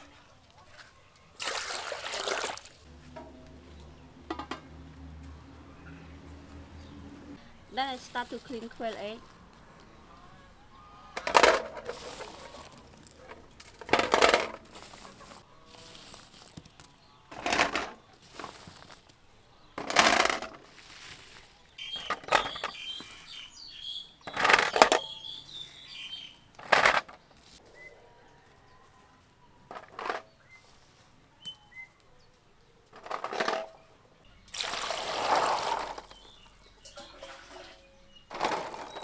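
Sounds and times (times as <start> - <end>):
hands rustling through rice husks: 7.8 - 9.6, 11.8 - 13.2, 14.5 - 17.0, 18.2 - 19.3, 20.6 - 23.4
water running into bowl: 34.5 - 36.1, 36.9 - 37.8.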